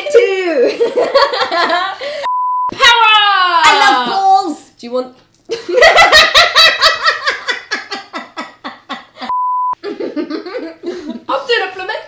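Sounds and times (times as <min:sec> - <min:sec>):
test-tone beep: 0:02.3 - 0:02.7, 0:09.3 - 0:09.8
hearty laughter: 0:05.5 - 0:11.2.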